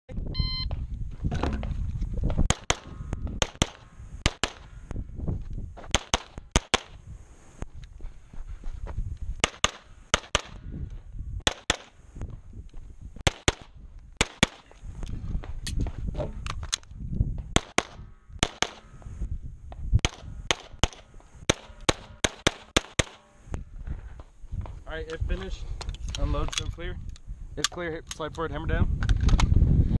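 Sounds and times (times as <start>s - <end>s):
pistol shots: 2.5s - 4.6s, 9.4s - 10.6s, 11.4s - 11.9s, 13.2s - 14.7s, 17.6s - 18.9s, 20.0s - 23.2s.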